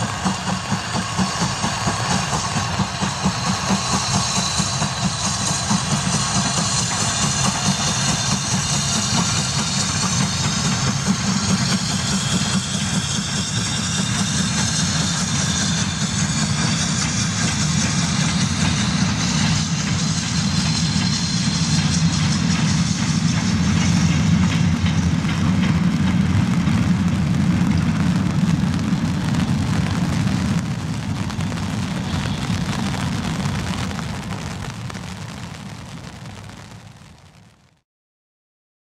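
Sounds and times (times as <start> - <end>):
rumble of passing wagons: 0.0 - 37.5
steam locomotive exhaust: 0.0 - 37.6.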